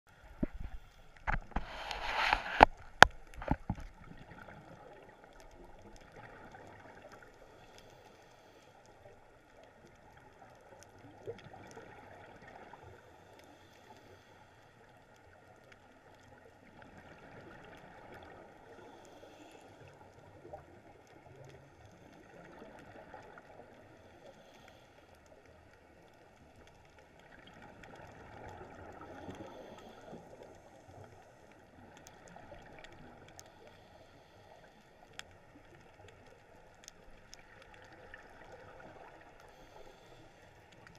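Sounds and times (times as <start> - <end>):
underwater bubbles gurgling: 0.1 - 40.9.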